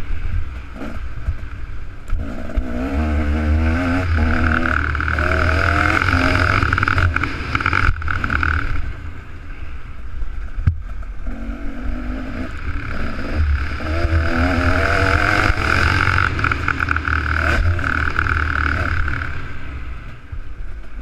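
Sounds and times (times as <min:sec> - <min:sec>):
motocross bike engine revving: 0:00.7 - 0:01.4, 0:02.1 - 0:09.2, 0:11.2 - 0:20.2.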